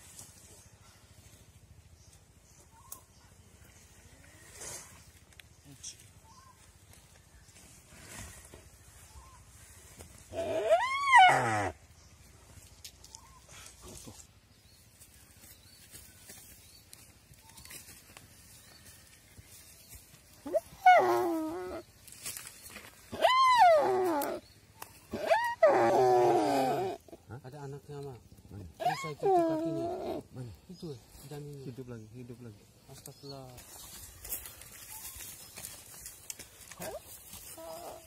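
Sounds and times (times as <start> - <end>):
deer distress bleats: 10.3 - 11.8, 25.1 - 27.2.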